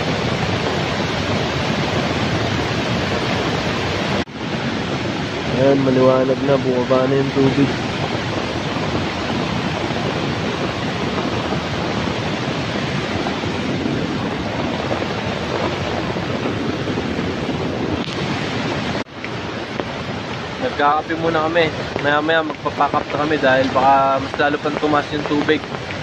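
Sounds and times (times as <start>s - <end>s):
floodwater rushing over rocks: 0.0s - 26.0s.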